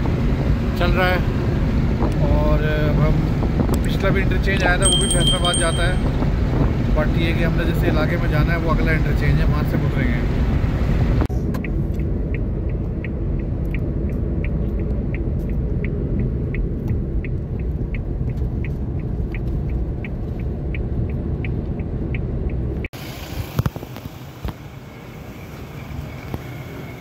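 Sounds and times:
car road and engine rumble: 0.0s - 27.0s
turn indicator ticking: 11.4s - 22.9s.

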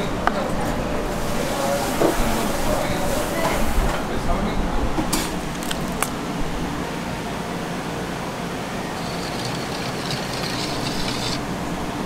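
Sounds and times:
kitchen ventilation hum: 0.0s - 12.0s
apples clicking into steel bowl: 5.6s - 6.2s.

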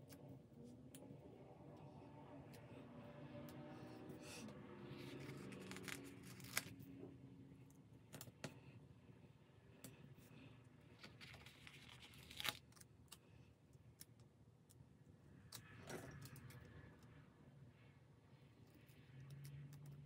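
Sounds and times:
sticker sheet rustling: 4.9s - 6.8s
stickers being peeled off: 4.9s - 6.8s, 11.0s - 12.9s
light paper ticks and crinkles: 4.9s - 7.0s, 10.8s - 17.2s.

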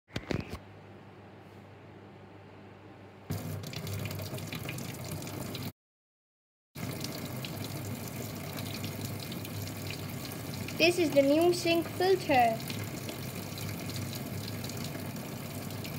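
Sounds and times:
tap water pouring into basin: 3.3s - 5.7s, 6.8s - 15.9s.

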